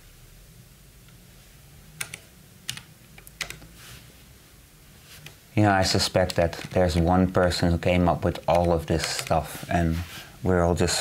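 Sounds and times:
typing on a keyboard: 2.0 - 3.6, 6.2 - 7.0, 8.4 - 9.4.

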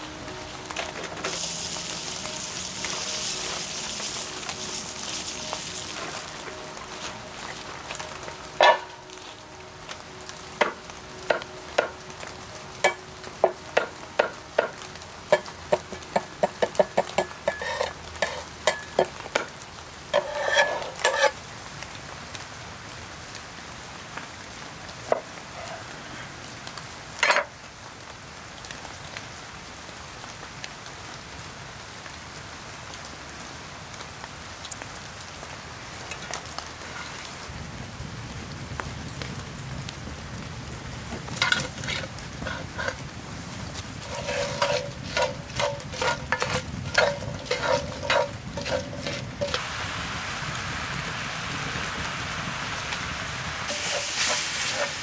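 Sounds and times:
sizzling in a pan: 0.0 - 22.8, 24.8 - 26.3, 27.0 - 27.8, 33.0 - 55.0
scraping on cutting board: 17.5 - 18.5, 20.2 - 21.4, 41.4 - 43.0, 44.0 - 49.6.

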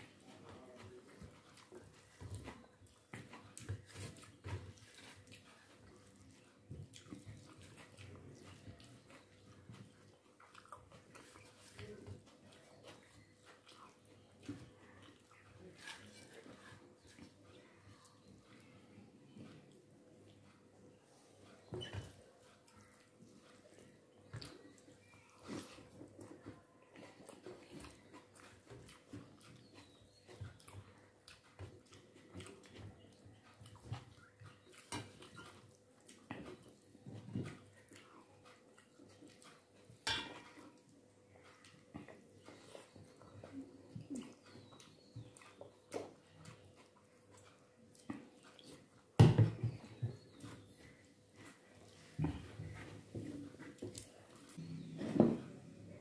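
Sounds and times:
chewing: 0.0 - 56.0
fingers mixing food on a plate: 0.0 - 56.0.

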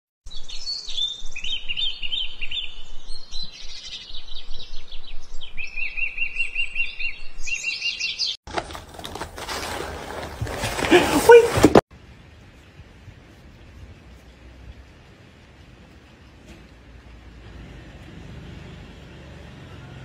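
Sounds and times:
birds singing and chirping: 0.3 - 8.4
faint outdoor background: 0.3 - 20.0.

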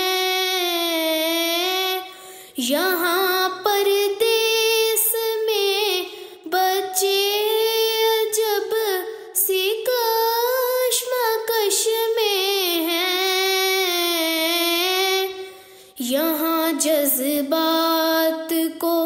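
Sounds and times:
woman singing with vibrato: 0.0 - 19.0
singer breathing: 2.1 - 2.6, 6.1 - 6.5, 15.4 - 16.0.

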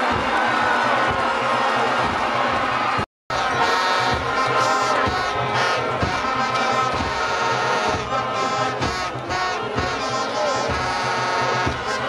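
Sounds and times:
brass instruments playing music: 2.8 - 12.0.

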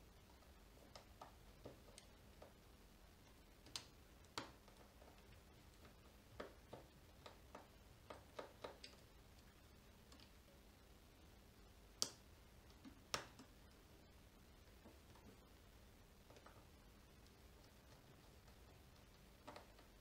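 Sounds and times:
sharp clicks: 3.2 - 9.5, 11.9 - 13.7.

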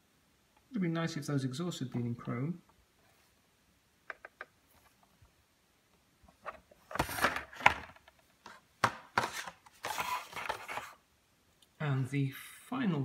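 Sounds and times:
plastic packaging rustling: 6.8 - 11.0.

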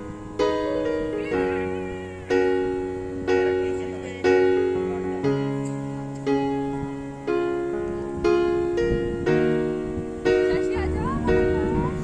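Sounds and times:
gentle piano chords: 0.0 - 12.0.

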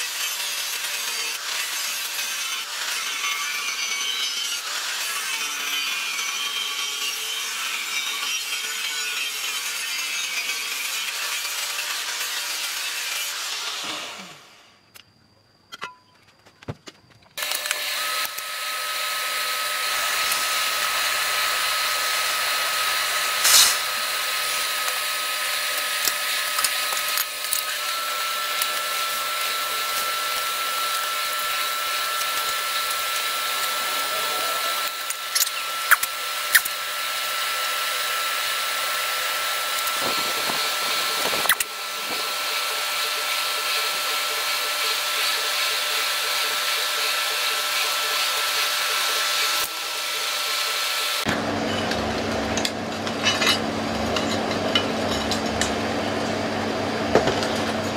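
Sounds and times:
electric air blower running: 17.4 - 57.9.

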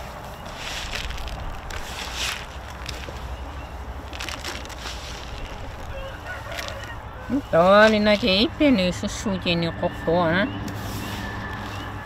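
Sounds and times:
loud rustling: 0.0 - 8.6
chickens squawking: 1.8 - 8.8.

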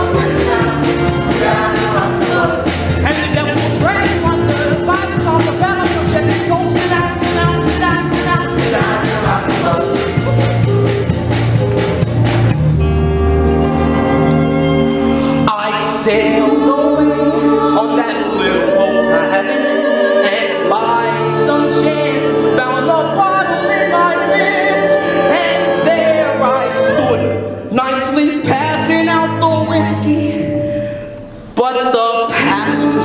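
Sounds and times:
cast singing in harmony: 0.0 - 10.4, 15.5 - 27.6
bass-heavy band: 0.0 - 19.2.

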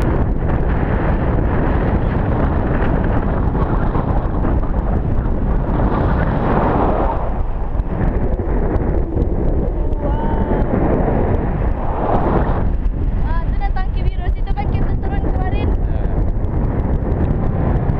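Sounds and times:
wind buffeting microphone: 0.0 - 17.9.

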